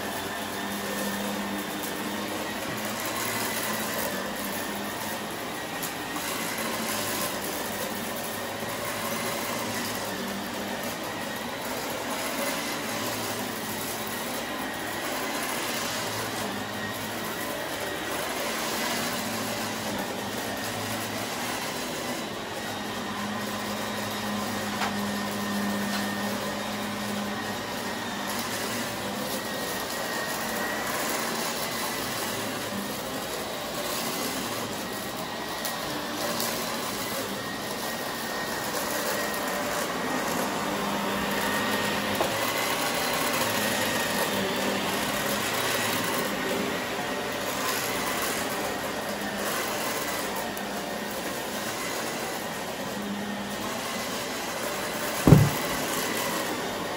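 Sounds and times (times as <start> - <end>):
vacuum cleaner on carpet: 0.0 - 56.9.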